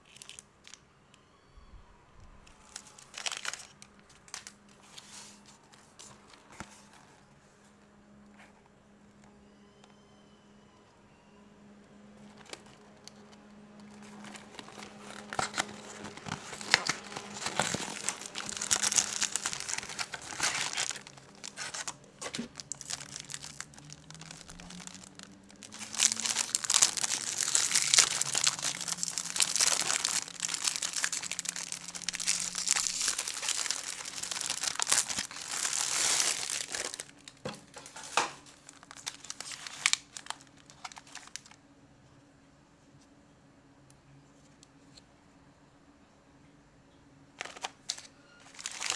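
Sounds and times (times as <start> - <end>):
wrapper crinkling and tearing: 0.0 - 0.8, 2.4 - 7.2, 12.2 - 41.6, 47.4 - 48.9.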